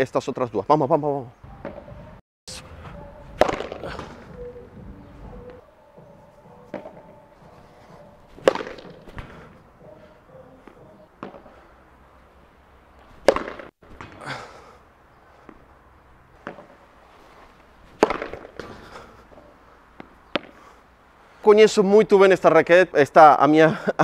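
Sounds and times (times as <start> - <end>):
padel racket smashing ball: 3.4 - 4.2, 8.3 - 9.4, 13.2 - 14.2, 18.0 - 18.8.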